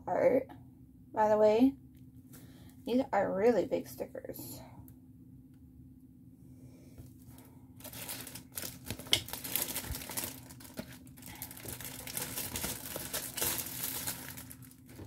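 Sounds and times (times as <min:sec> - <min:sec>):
plastic packaging crinkling: 0:07.3 - 0:15.0.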